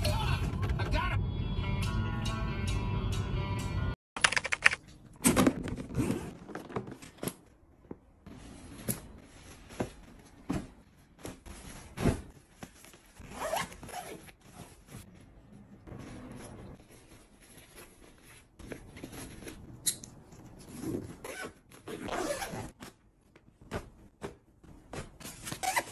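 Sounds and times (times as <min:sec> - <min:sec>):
zippers being pulled: 0:20.7 - 0:22.7.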